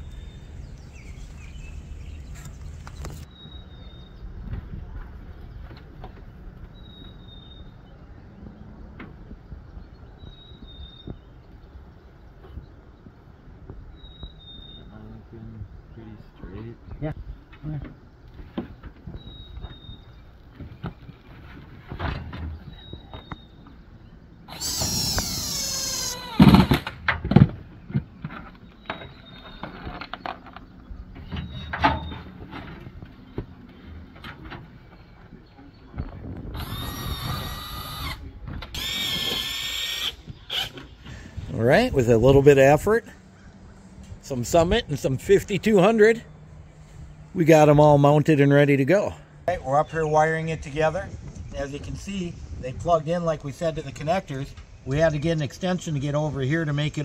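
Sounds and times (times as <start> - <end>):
cordless drill whine: 24.5 - 26.9, 36.6 - 40.8.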